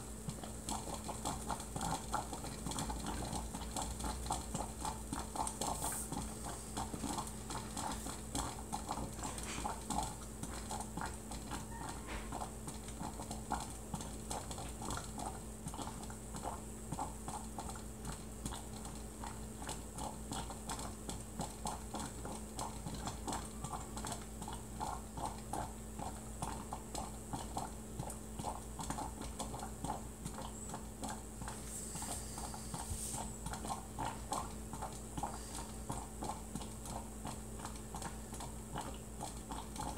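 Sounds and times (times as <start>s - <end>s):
coffee percolator gurgling: 0.0s - 39.9s.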